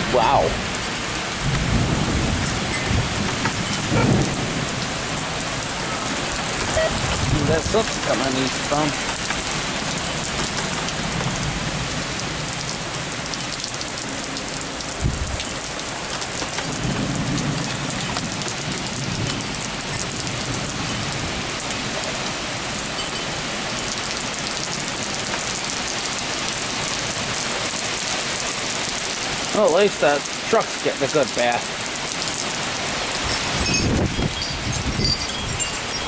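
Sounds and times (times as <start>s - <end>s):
thunder rumbling: 0.0s - 21.5s
heavy rain pouring: 0.0s - 36.0s.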